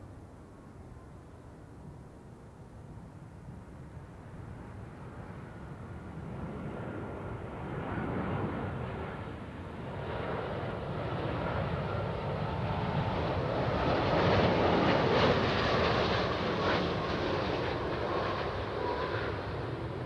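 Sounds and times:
jet engines rumbling: 5.3s - 20.0s.

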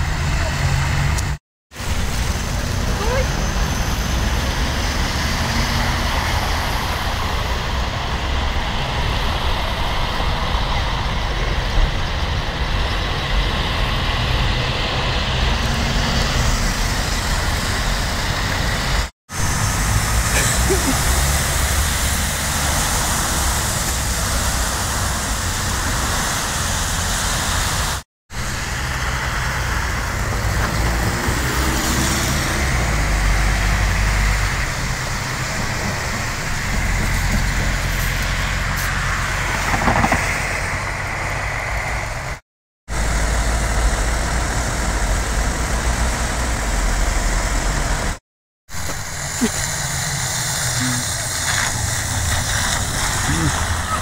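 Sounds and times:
buses and cars passing on wet street: 0.0s - 54.0s.

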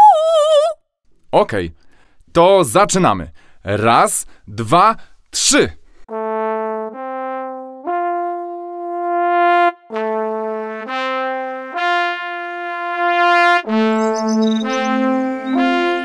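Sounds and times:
trumpet playing rising phrase: 6.1s - 16.0s.

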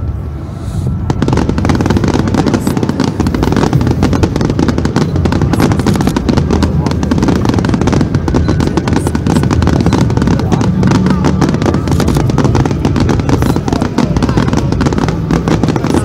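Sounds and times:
fireworks crackling and popping: 0.0s - 16.0s
crowd talking: 1.2s - 16.0s.

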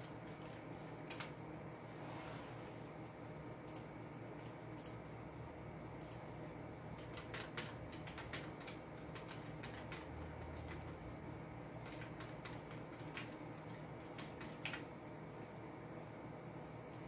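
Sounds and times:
low steady hum: 0.0s - 17.0s
keyboard and mouse clicks: 0.3s - 1.4s, 3.6s - 5.0s, 7.0s - 11.0s.

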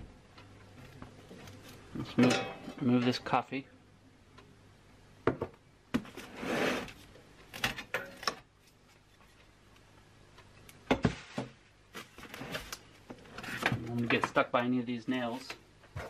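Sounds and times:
cardboard scraping rub: 6.2s - 6.9s.

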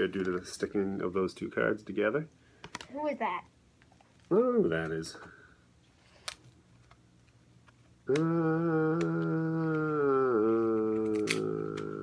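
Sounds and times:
person humming: 8.0s - 12.0s.

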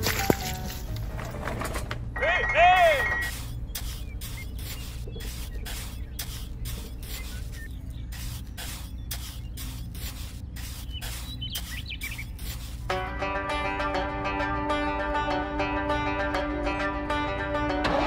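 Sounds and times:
trowel scraping wet mortar: 3.2s - 12.9s.

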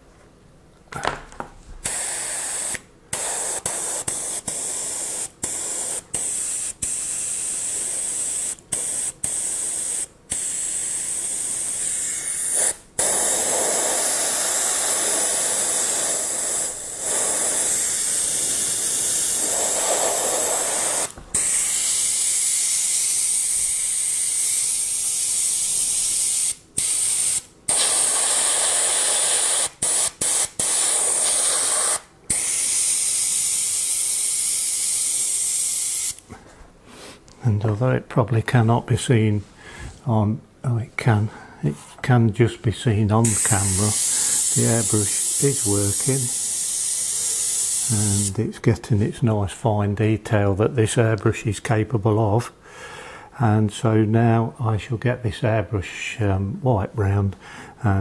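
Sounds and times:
airbrush spraying hiss: 1.8s - 36.2s, 43.2s - 48.3s.

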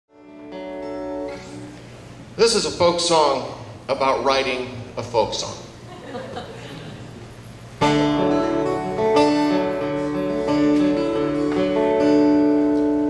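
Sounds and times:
acoustic guitar chords: 0.1s - 3.9s, 6.4s - 13.0s.

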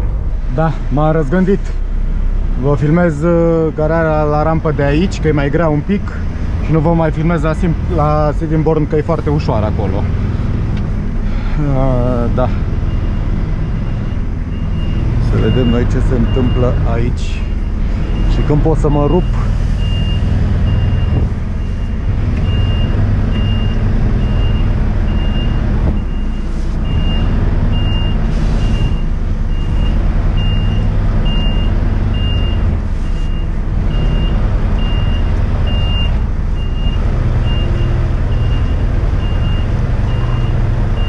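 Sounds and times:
diesel engine running: 0.0s - 41.0s
reversing alarm beeping: 12.8s - 41.0s.

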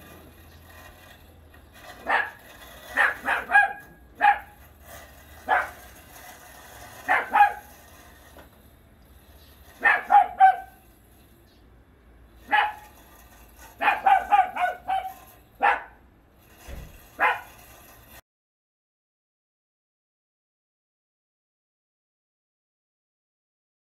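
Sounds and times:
dog barking high-pitched: 2.0s - 4.6s, 5.4s - 5.8s, 7.0s - 7.7s, 9.8s - 10.8s, 12.5s - 12.9s, 13.8s - 16.0s, 17.2s - 17.5s.

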